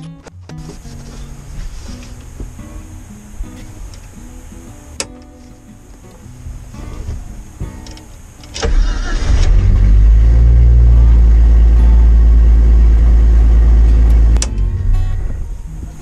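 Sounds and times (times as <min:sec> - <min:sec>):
car engine cranking and running: 0:05.0 - 0:16.0.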